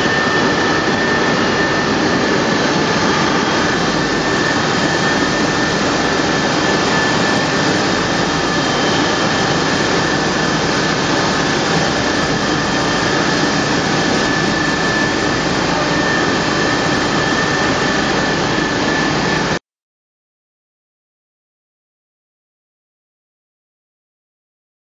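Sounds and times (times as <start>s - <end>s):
wire coiling machine whining: 0.0s - 19.6s.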